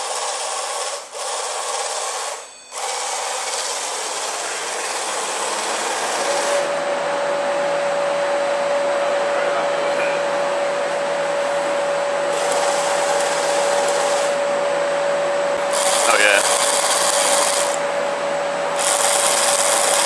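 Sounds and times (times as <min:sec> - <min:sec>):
electric chainsaw running: 0:00.0 - 0:06.8, 0:12.2 - 0:14.5, 0:15.5 - 0:18.0, 0:18.7 - 0:20.0
steady whine: 0:00.0 - 0:20.0.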